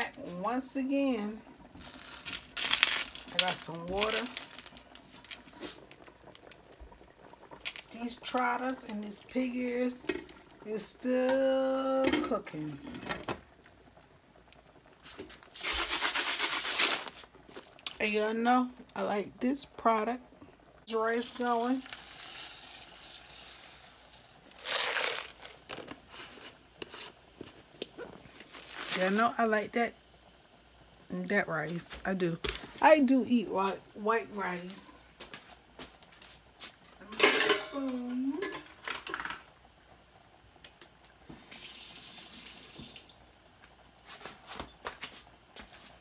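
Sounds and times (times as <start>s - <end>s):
dry grains pouring rattle: 15.5s - 17.2s, 21.8s - 25.6s
kitchen tap running: 20.9s - 26.3s, 41.3s - 43.3s.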